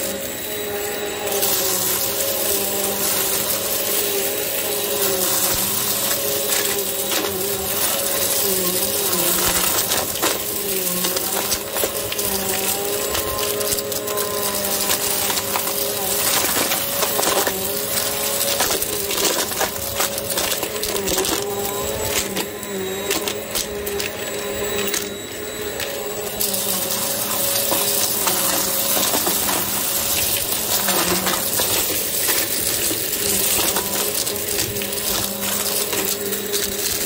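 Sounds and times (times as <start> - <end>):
debris crackling through nozzle: 0.0 - 25.1, 25.9 - 37.0
upright vacuum cleaner humming: 0.0 - 37.0.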